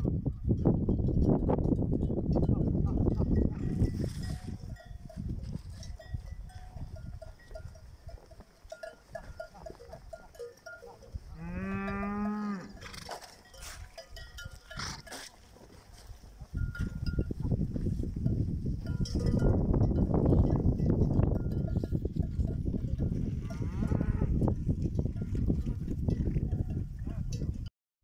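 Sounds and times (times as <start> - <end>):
animal bells clinking: 0.0 - 27.7
cow mooing: 10.8 - 13.2, 23.3 - 24.4.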